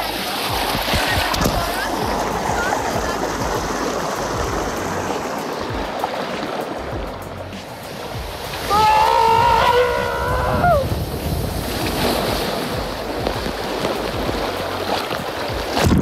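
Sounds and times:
loud splash: 0.0 - 16.0
wind and water rushing: 0.0 - 16.0
person yelling: 8.6 - 10.9.

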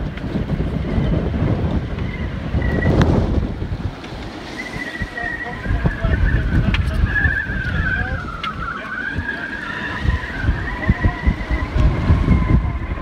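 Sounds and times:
wind buffeting microphone: 0.0 - 13.0
high wavering whistle: 2.0 - 3.4, 4.4 - 13.0.

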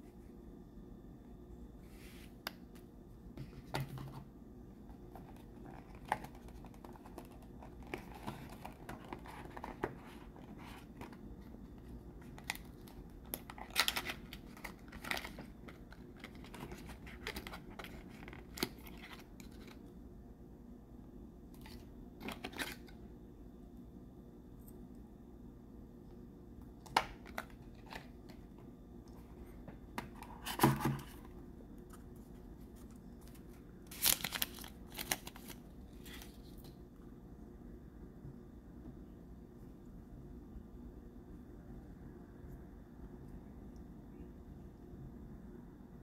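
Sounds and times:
faint low hum: 0.0 - 46.0
cardboard packaging rustling: 4.9 - 19.8, 32.1 - 36.7.

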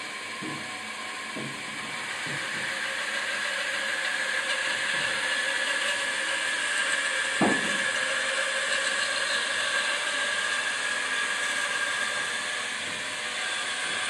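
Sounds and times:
band saw motor whine: 0.0 - 14.0
short knock: 7.4 - 7.8.

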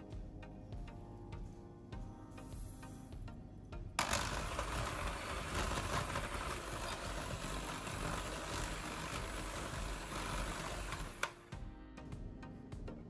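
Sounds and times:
electric hand mixer running: 4.0 - 11.4.

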